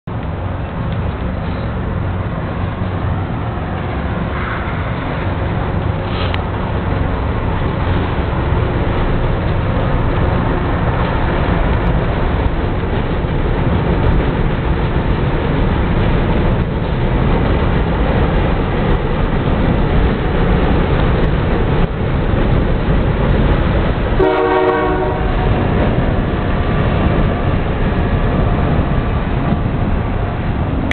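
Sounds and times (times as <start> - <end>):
train wheels rumbling on track: 0.0 - 30.9
train horn blast: 24.2 - 25.7.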